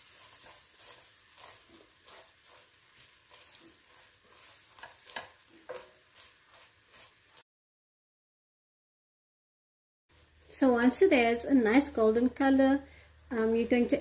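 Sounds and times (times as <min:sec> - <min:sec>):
noodles sizzling faintly in butter: 0:00.0 - 0:07.4, 0:10.1 - 0:14.0
wooden spoon scraping a pan: 0:00.0 - 0:07.4.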